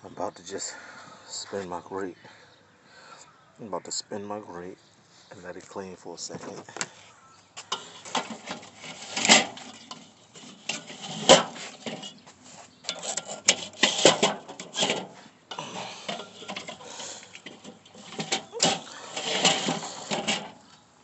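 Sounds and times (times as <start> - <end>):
metal grate scraping and clanking: 7.7 - 20.8.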